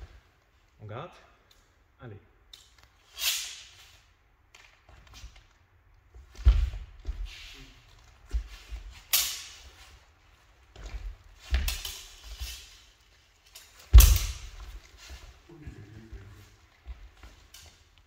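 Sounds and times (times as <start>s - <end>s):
feet thumping on wooden floor: 6.2s - 7.3s, 13.9s - 15.4s
steel blades clashing and scraping: 9.0s - 9.7s.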